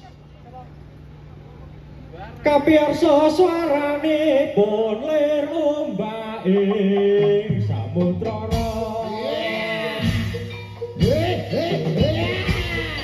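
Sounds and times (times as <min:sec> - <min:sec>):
person singing: 0:03.7 - 0:10.4, 0:11.0 - 0:13.0
deep bass note: 0:06.2 - 0:13.0.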